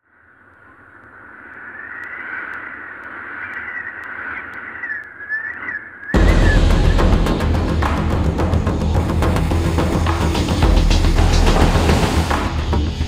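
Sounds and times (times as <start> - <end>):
high wavering whistling tone: 4.7 - 7.2
loud drum-led music: 6.2 - 13.0.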